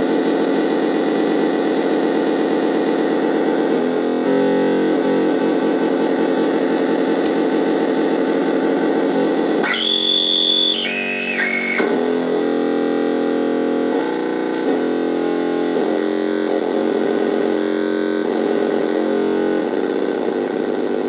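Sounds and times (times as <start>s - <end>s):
synthesizer buzzing drone: 0.0s - 21.0s.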